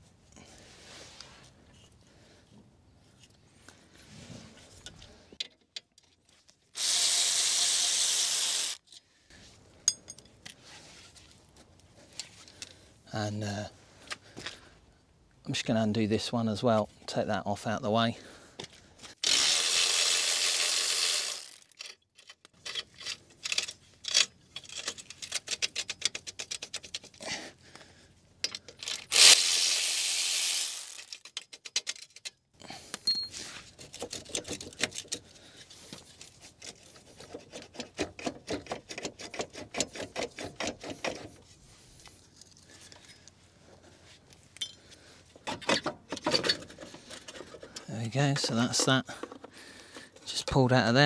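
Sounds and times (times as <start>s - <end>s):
power tool running: 6.8s - 8.8s, 19.2s - 21.7s, 29.1s - 31.1s.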